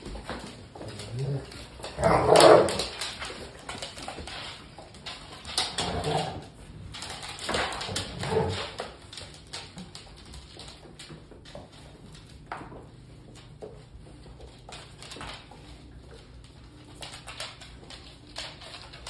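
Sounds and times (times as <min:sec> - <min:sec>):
claws clicking on hard floor: 0:00.0 - 0:19.0
dogs play vocalizing: 0:00.6 - 0:09.0.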